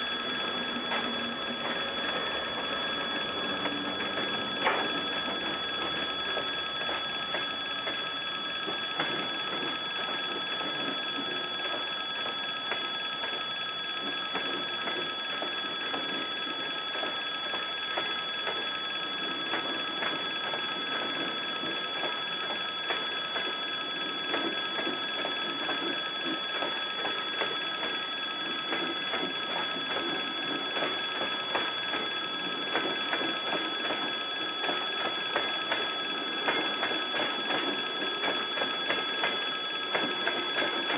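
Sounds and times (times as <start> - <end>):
level-crossing bell ringing: 0.0 - 7.6.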